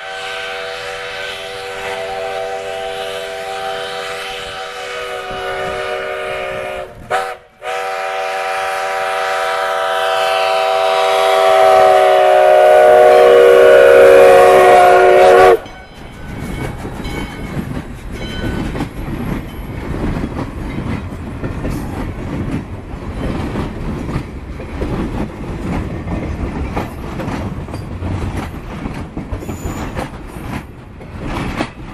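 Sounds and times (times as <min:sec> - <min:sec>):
steam locomotive whistle: 0:00.0 - 0:15.8
rail cars clanking over rail joints: 0:15.4 - 0:31.9.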